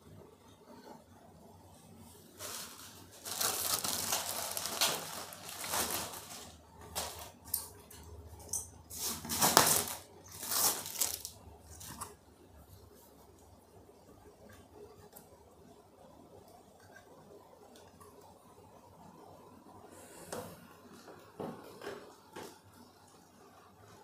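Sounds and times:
plastic packaging crinkling: 2.4 - 7.6, 8.9 - 12.1.

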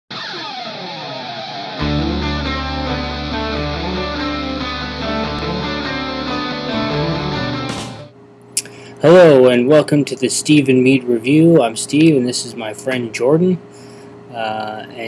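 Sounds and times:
guitar-driven rock music: 0.1 - 8.1.

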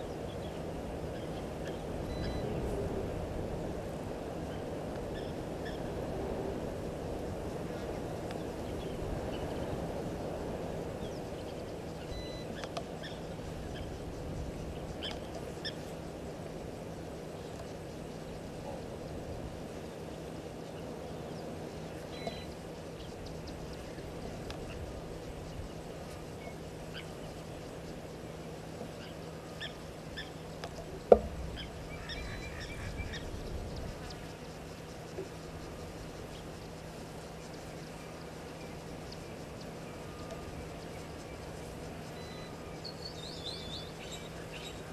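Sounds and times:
low hiss and hum: 0.0 - 44.9
bird chirps: 1.1 - 2.6, 11.0 - 15.9, 20.7 - 28.0, 28.9 - 36.8, 37.4 - 44.9.

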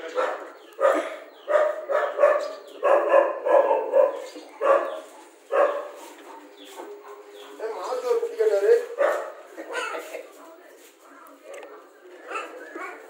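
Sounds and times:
puppies barking and yelping: 0.0 - 7.6.

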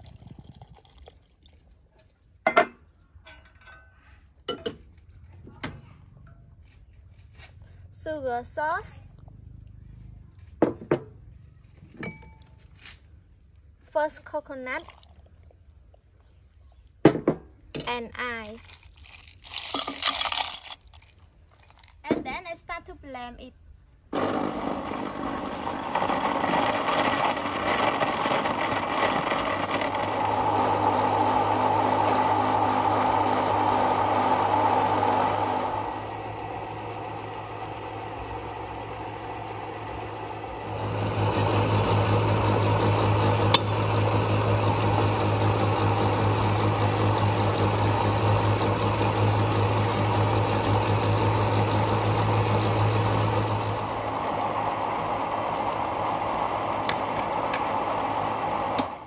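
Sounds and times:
blender motor running: 24.1 - 59.0.

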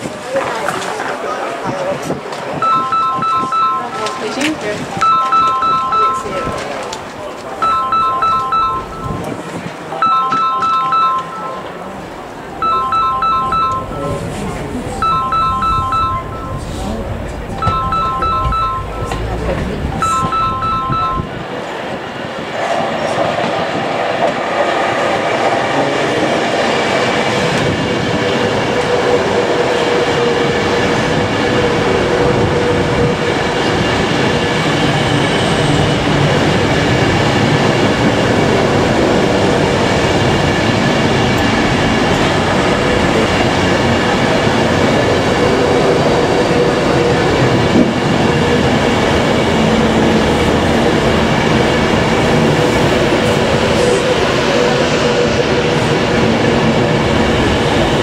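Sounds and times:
train running close by: 0.0 - 58.0
steady tones: 2.6 - 21.6.

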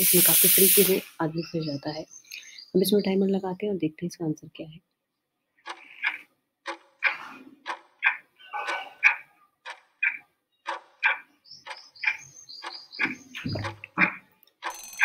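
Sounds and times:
clock ticking: 5.6 - 15.0.

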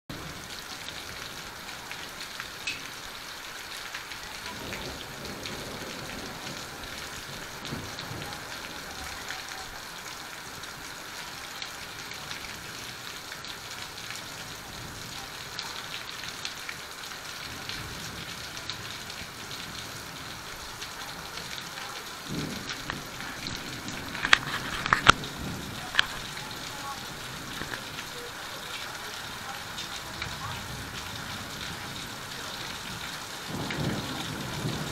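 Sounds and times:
heavy rain falling: 0.1 - 34.9.

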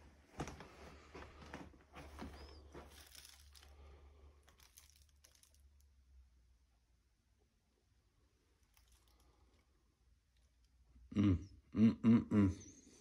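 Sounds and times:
footsteps crunching over debris: 0.0 - 5.6.

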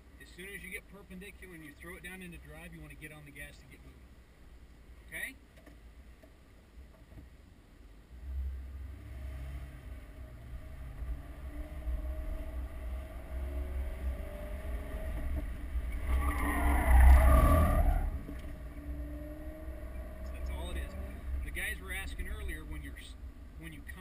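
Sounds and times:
car engine accelerating: 8.1 - 24.0
tyres squealing: 15.9 - 18.3.

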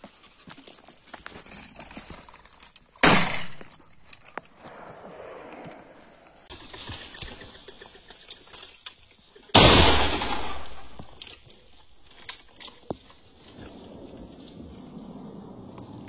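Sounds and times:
shotgun shot: 3.0 - 3.7, 9.6 - 11.1.

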